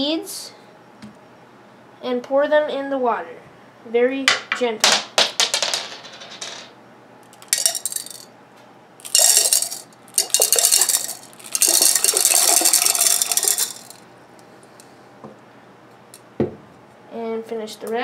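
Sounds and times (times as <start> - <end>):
glass beads clattering and clinking: 7.4 - 8.3, 9.0 - 14.0.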